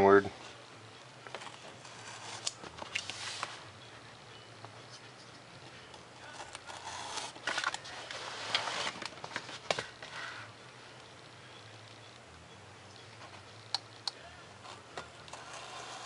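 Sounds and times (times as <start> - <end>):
knife cutting foam: 6.3 - 7.4.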